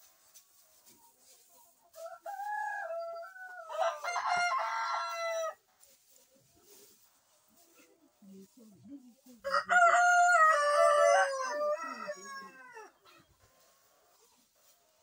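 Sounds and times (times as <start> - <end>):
rooster crowing: 2.2 - 5.6, 9.5 - 12.9.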